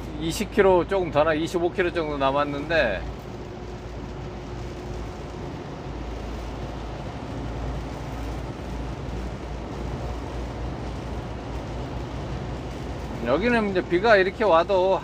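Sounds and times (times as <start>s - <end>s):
truck engine and tyre noise: 0.0s - 15.0s.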